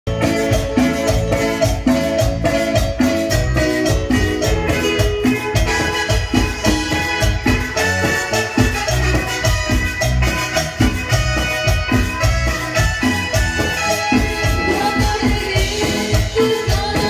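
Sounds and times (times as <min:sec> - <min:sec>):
keyboard melody: 0:00.0 - 0:17.0
live latin dance band: 0:00.1 - 0:17.0.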